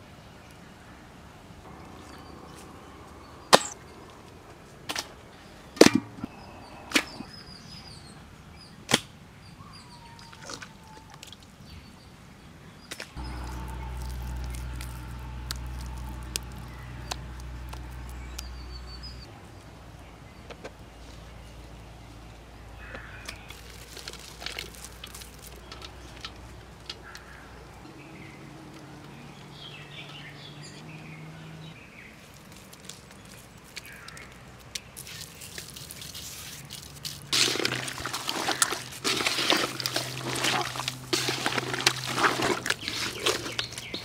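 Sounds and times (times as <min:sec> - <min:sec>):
birds chirping faintly: 0:00.0 - 0:12.1, 0:12.7 - 0:44.0
low steady hum: 0:01.5 - 0:07.4, 0:13.2 - 0:20.4.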